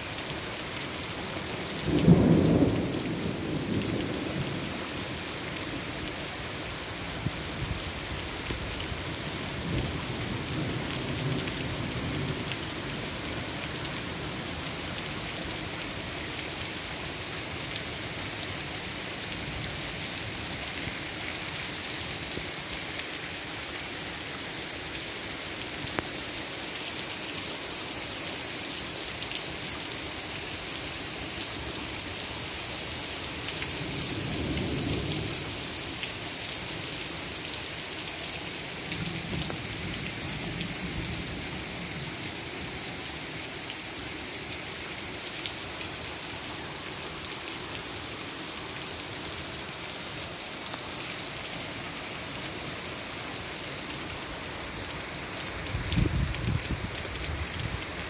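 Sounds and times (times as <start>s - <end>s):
heavy rain on road: 0.0s - 58.0s
low thunder rumbles: 1.9s - 4.7s.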